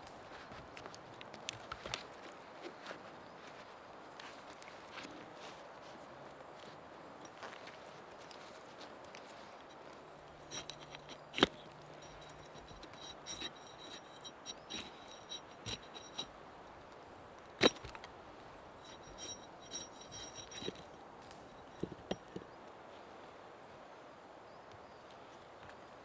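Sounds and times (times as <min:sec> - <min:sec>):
roots crackling and clicking: 0:00.3 - 0:05.1, 0:07.2 - 0:16.3, 0:17.4 - 0:18.2.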